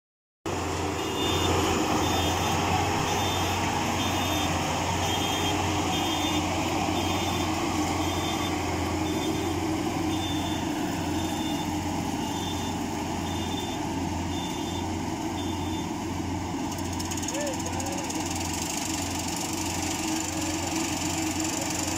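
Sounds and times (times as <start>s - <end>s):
combine harvester engine droning: 0.5s - 21.9s
short high electronic beeps: 1.0s - 15.9s.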